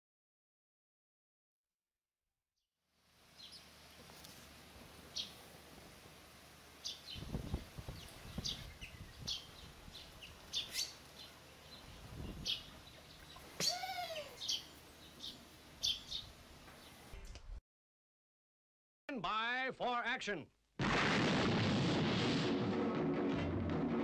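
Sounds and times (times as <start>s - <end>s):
songbirds chirping: 3.2s - 17.2s
bird call rising and falling: 6.8s - 17.0s.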